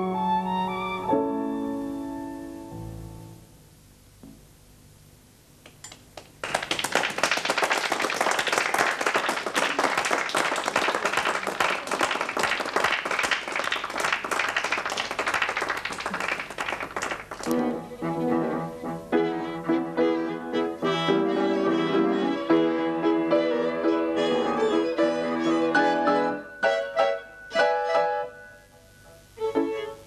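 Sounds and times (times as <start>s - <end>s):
audience clapping: 5.9s - 17.6s.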